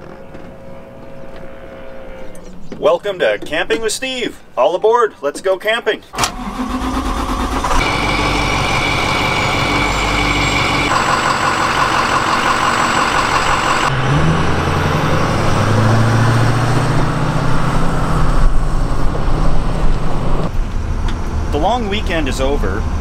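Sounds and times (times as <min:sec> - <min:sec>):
diesel bus engine: 0:06.2 - 0:23.0.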